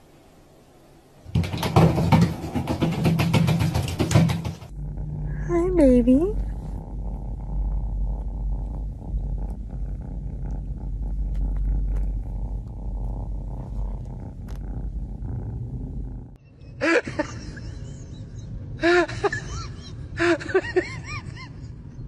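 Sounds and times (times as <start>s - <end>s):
kitten purring: 2.4s - 16.4s.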